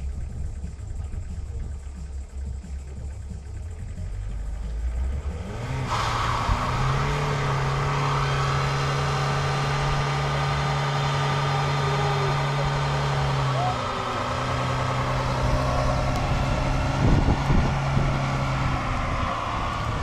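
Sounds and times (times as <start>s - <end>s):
car engine idling and revving: 0.0s - 20.0s
tyres squealing in a burnout: 5.3s - 20.0s.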